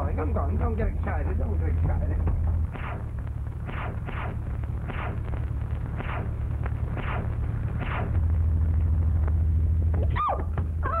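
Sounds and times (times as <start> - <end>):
aircraft engine droning: 4.4 - 11.0.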